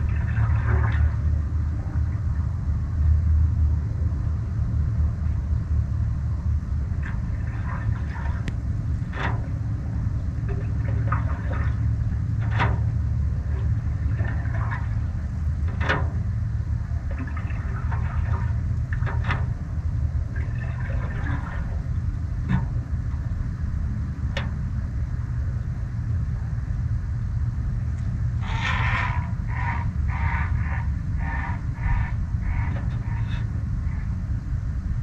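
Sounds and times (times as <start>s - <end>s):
paddle splashing in water: 0.0s - 2.3s, 7.0s - 16.3s, 16.9s - 22.8s
soft water sounds off paddle: 0.0s - 35.0s
wind buffeting microphone: 0.0s - 35.0s.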